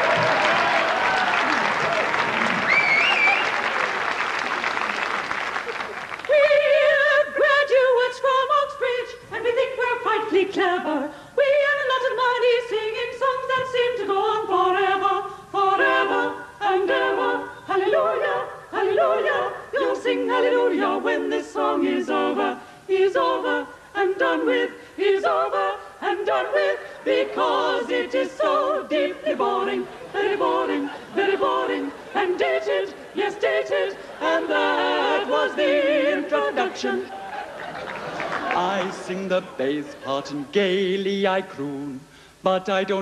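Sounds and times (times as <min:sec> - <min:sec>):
audience applause: 0:00.0 - 0:06.4, 0:37.1 - 0:39.3
women singing in harmony: 0:06.2 - 0:37.7.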